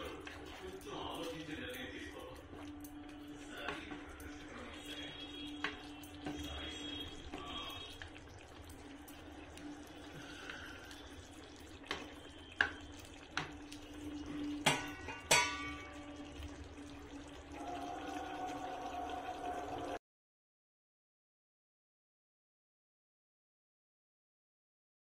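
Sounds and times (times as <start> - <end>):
gravy simmering and bubbling: 0.0 - 20.0.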